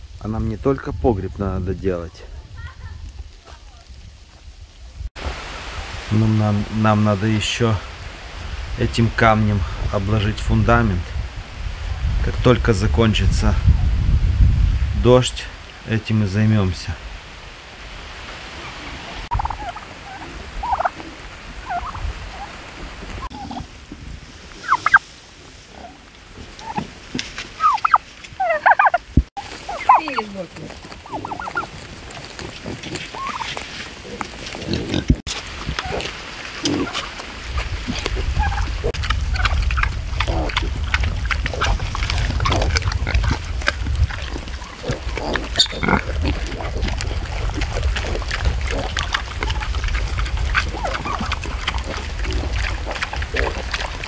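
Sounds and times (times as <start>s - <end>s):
turkeys yelping: 18.6s - 22.6s, 24.6s - 25.0s, 26.6s - 26.9s, 27.6s - 33.7s, 36.8s - 54.0s
piglets grunting: 40.1s - 54.0s
piglet squealing: 44.6s - 46.9s.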